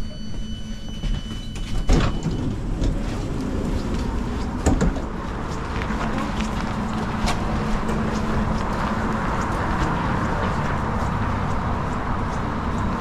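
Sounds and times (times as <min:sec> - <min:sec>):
train door sliding open: 0:00.0 - 0:05.2.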